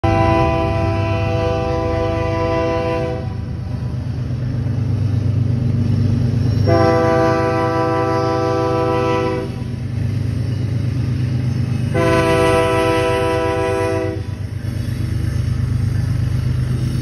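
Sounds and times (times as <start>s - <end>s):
locomotive air horn chord: 0.0s - 3.5s, 6.6s - 9.7s, 11.9s - 14.4s.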